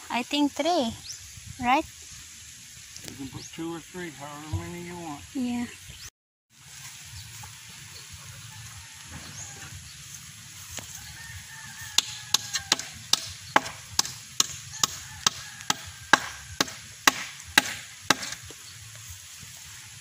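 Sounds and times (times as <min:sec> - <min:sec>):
hammer striking bamboo post: 0:12.0 - 0:18.4.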